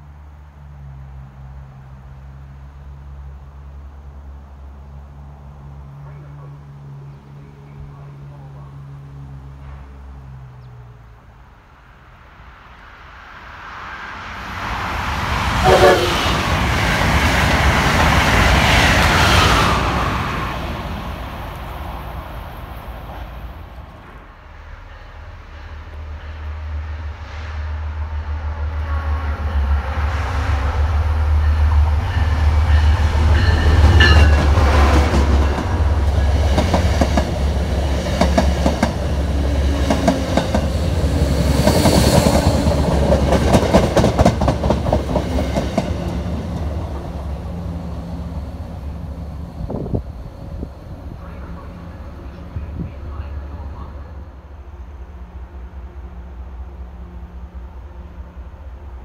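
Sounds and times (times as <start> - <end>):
diesel train engine drone: 0.0 - 59.0
train wheels clacking over rail joints: 32.7 - 41.0, 41.6 - 47.2.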